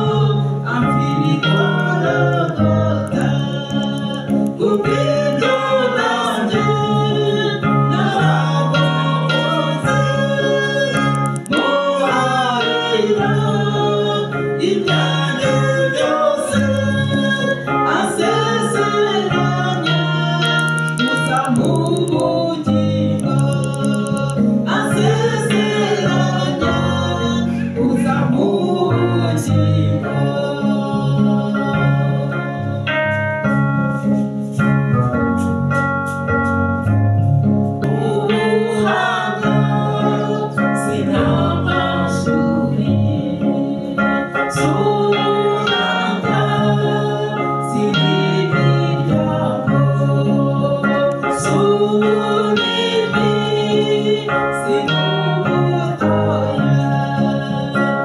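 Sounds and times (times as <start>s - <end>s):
woman singing: 0.0s - 32.8s
man singing: 0.0s - 33.2s, 37.9s - 58.0s
organ-like keyboard chords: 0.0s - 58.0s.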